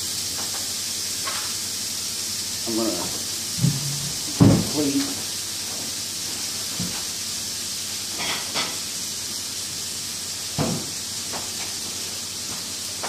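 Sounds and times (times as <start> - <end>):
patties sizzling in frying pan: 0.0 - 13.0
kitchenware knocks: 3.6 - 4.8, 10.6 - 10.9.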